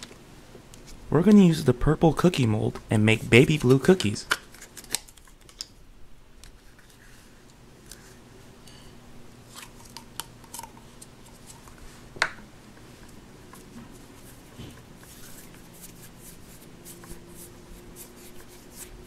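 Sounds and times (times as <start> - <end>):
faint steady hum: 0.0 - 19.0
hands kneading modelling dough: 12.8 - 19.0.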